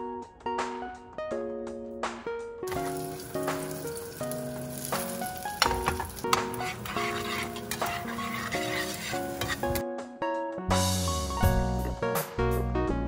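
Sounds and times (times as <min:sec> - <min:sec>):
light background music: 0:00.0 - 0:13.0
chopsticks scraping a pan: 0:02.7 - 0:09.8
eggs sizzling in a frying pan: 0:02.7 - 0:09.8.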